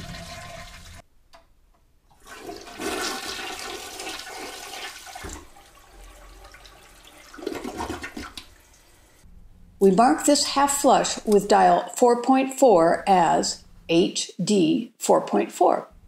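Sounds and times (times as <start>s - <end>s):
toilet flushing: 0.0s - 1.0s, 2.1s - 9.2s.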